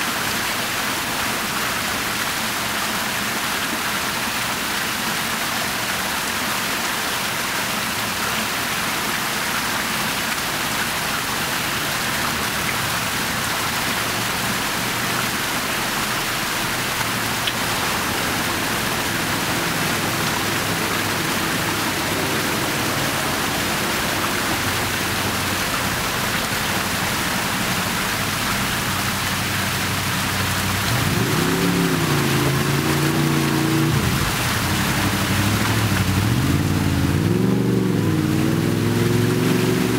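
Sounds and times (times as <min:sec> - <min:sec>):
fountain water splashing: 0:00.0 - 0:39.9
vehicle engine: 0:12.2 - 0:39.9.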